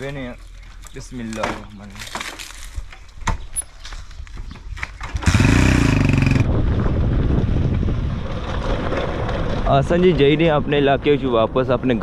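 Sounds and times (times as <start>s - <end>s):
small motorcycle engine starting: 5.0s - 6.5s.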